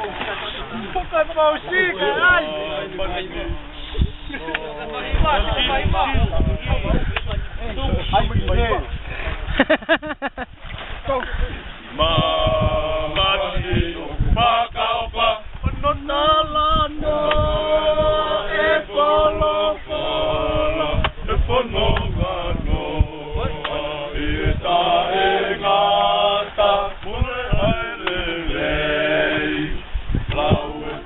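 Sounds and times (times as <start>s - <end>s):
men singing unaccompanied: 1.5s - 7.0s, 11.9s - 31.0s.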